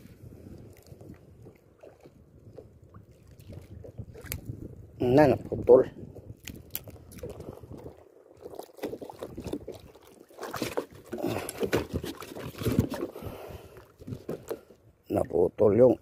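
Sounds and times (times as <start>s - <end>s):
seawater sloshing and lapping: 0.0s - 4.8s, 6.4s - 15.2s
knocks and rustles in water: 0.0s - 16.0s.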